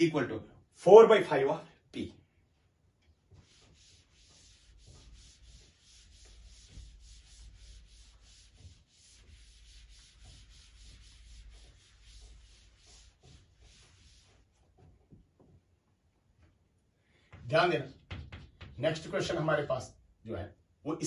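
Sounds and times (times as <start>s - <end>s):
board eraser rubbing: 3.2s - 15.1s.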